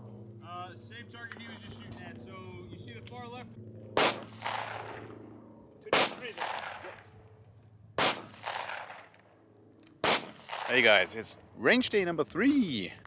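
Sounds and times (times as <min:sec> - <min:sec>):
handgun shots: 0:04.0 - 0:05.0, 0:05.9 - 0:07.0, 0:08.0 - 0:09.2, 0:10.0 - 0:10.8
gunshot echo: 0:04.0 - 0:05.1, 0:05.9 - 0:07.0, 0:08.0 - 0:09.2, 0:10.0 - 0:11.0.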